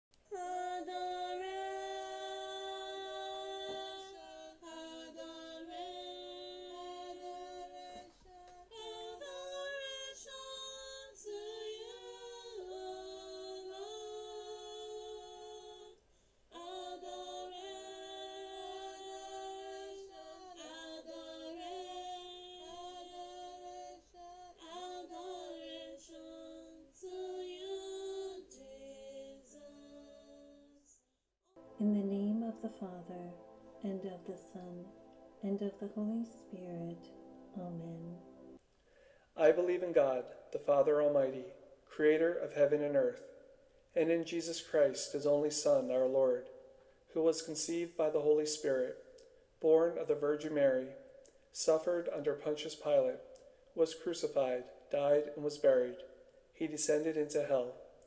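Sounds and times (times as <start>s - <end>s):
woman singing unaccompanied: 0.1s - 31.0s, 31.6s - 38.4s.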